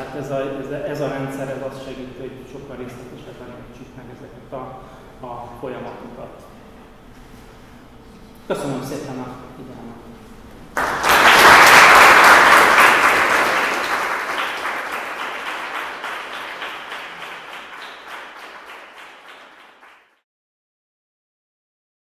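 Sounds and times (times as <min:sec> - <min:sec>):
audience applauding: 0:10.8 - 0:20.2.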